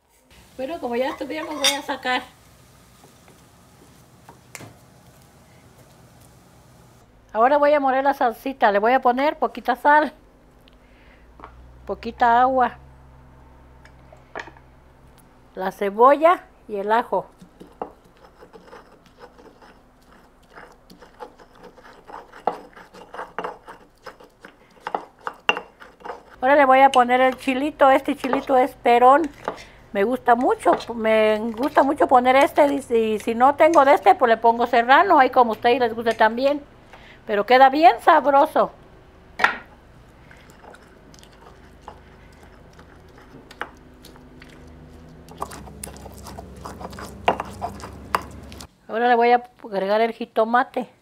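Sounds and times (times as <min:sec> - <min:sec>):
stone pestle pounding and grinding: 0:17.4 - 0:26.4, 0:40.4 - 0:48.7
soft squishing: 0:40.0 - 0:48.8.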